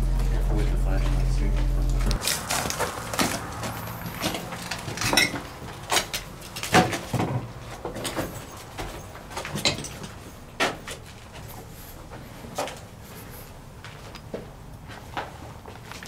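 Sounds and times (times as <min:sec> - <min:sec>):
footsteps on gritty concrete: 0:00.0 - 0:05.8.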